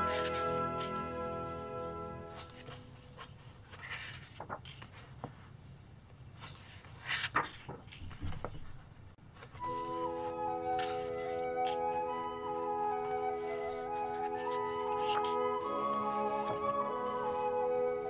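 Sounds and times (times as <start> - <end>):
paper pages rustling: 0.0 - 1.4, 2.2 - 18.0
background music: 0.0 - 2.8, 9.6 - 18.0.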